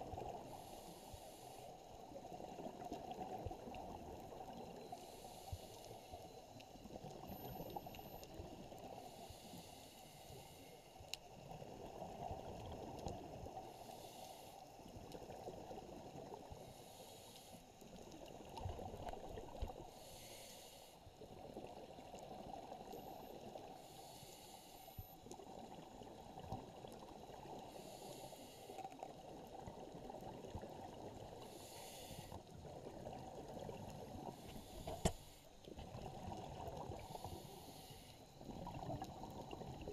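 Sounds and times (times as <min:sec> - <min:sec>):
muffled water rumble: 0:32.4 - 0:37.5.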